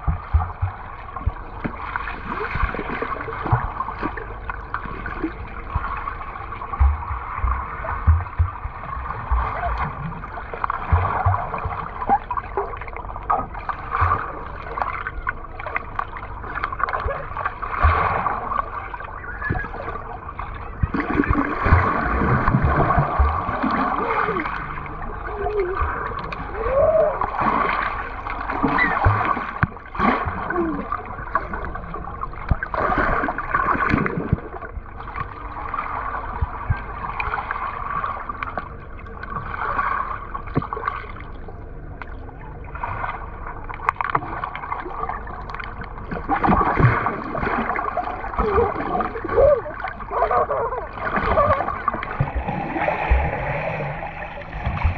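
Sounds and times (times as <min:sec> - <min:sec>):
knocks underwater: 0:00.0 - 0:15.1, 0:16.6 - 0:18.8, 0:20.7 - 0:24.7, 0:28.5 - 0:31.5, 0:32.4 - 0:35.4, 0:36.2 - 0:37.4, 0:40.5 - 0:40.9
muffled underwater splashing: 0:00.0 - 0:54.9
underwater bubbling and gurgling: 0:00.0 - 0:54.9.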